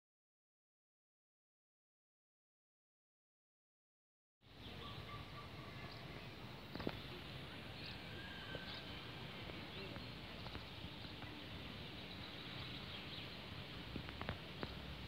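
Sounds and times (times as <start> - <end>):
steady low hiss: 4.4 - 15.0.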